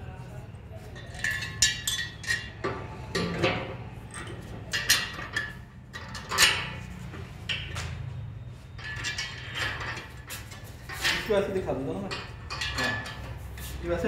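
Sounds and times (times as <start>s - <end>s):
metal parts clinking and knocking: 1.0s - 8.0s, 8.7s - 13.4s
sharp metal clanks: 8.8s - 13.4s.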